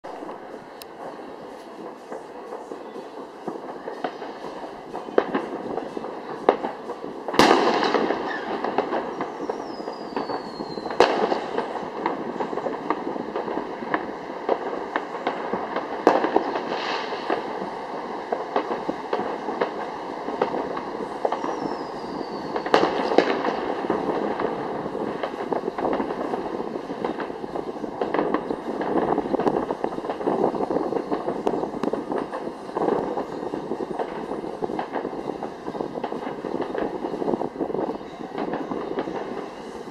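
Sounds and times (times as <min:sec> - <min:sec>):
fireworks bursting with bangs: 0:00.0 - 0:39.9
fireworks crackling and popping: 0:00.0 - 0:39.9
falling whistles: 0:08.3 - 0:11.0, 0:21.2 - 0:23.1.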